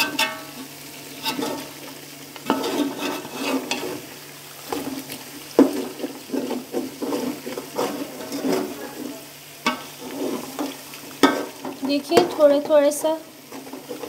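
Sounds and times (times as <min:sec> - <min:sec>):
ladle scraping a metal pot: 0:00.0 - 0:01.8, 0:02.4 - 0:04.1, 0:05.6 - 0:12.4
light sizzle: 0:00.0 - 0:14.0.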